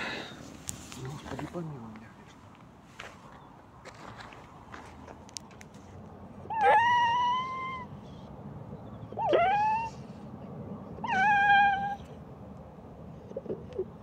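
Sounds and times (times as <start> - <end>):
puppy whining: 6.5 - 7.9, 8.9 - 10.1, 11.0 - 12.2.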